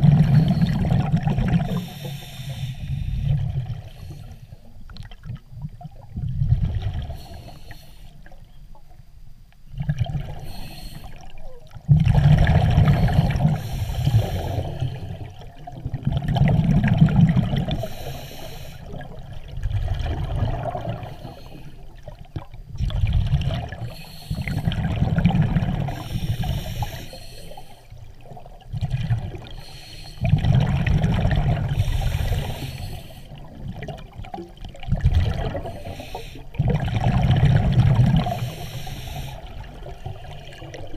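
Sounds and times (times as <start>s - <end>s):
bubbles gurgling: 0.0s - 1.9s, 5.0s - 7.3s, 9.7s - 10.4s, 11.2s - 17.8s, 18.9s - 21.2s, 22.0s - 26.7s, 28.2s - 29.6s, 30.2s - 32.7s, 33.3s - 40.9s
diver breathing through regulator: 0.0s - 4.7s, 7.1s - 8.2s, 10.3s - 11.3s, 12.6s - 15.4s, 17.6s - 19.0s, 20.8s - 21.8s, 23.7s - 25.0s, 25.7s - 28.0s, 29.4s - 30.5s, 31.6s - 33.4s, 35.4s - 37.3s, 38.2s - 39.8s.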